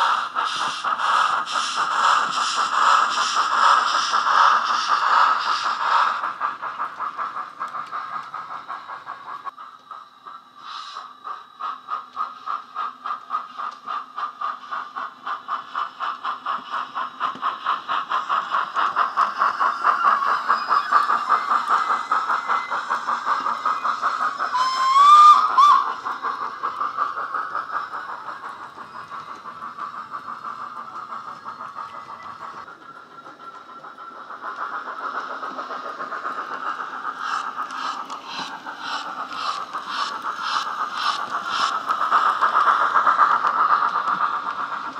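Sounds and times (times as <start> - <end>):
model steam exhaust chuffs: 0.0 - 44.9
rising whistle blast: 24.4 - 26.0.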